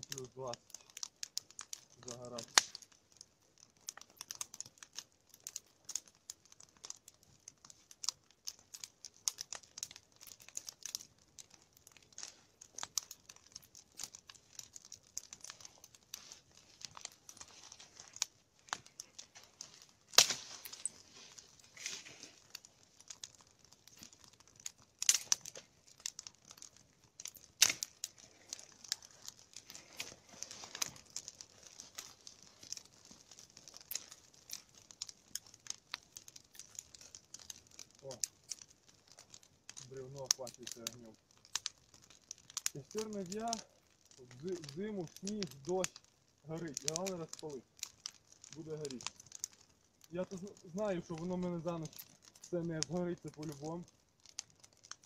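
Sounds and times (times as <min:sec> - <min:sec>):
log fire crackling: 0:00.0 - 0:55.0.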